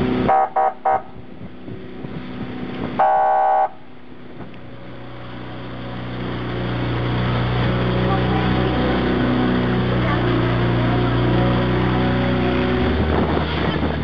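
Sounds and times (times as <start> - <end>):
boat horn toots: 0.0 - 1.3, 2.8 - 4.0
boat engine running: 0.0 - 14.0.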